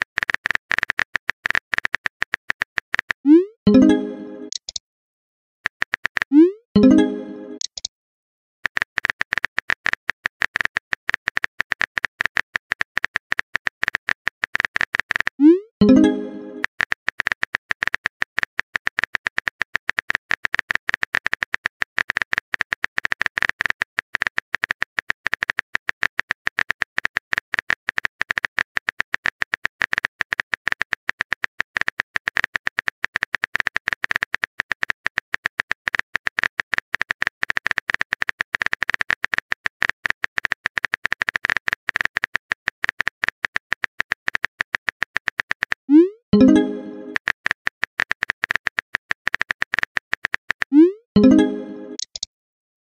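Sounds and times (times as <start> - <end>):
keyboard typing clicks: 0.0 - 4.8, 5.7 - 7.9, 8.6 - 52.3.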